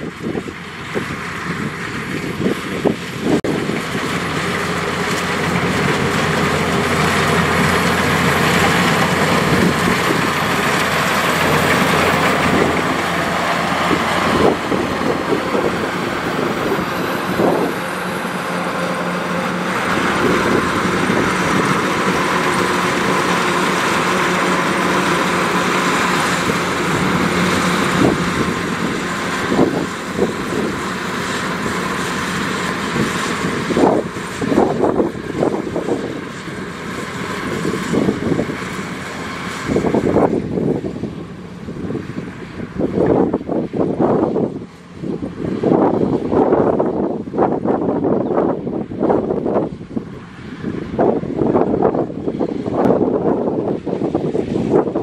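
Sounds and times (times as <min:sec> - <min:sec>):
diesel engine drone: 0:00.0 - 0:55.0.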